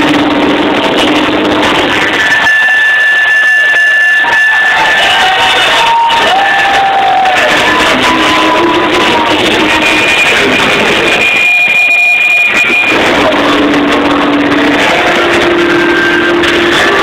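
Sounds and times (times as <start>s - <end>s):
distorted live metal band: 0.0s - 17.0s
high held whine: 0.0s - 17.0s.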